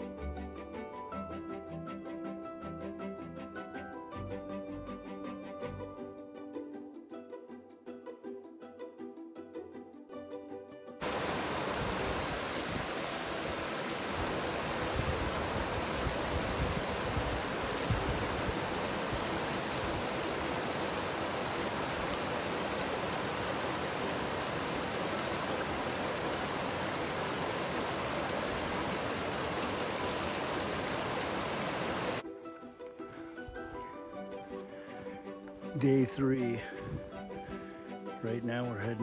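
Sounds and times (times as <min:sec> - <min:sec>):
stream rushing over boulders: 0:11.0 - 0:32.2.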